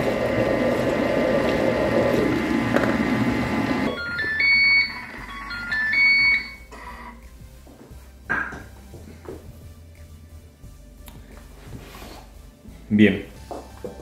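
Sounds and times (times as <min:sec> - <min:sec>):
kitchen robot motor churning: 0:00.0 - 0:03.9
electronic beeps tune: 0:03.9 - 0:06.7.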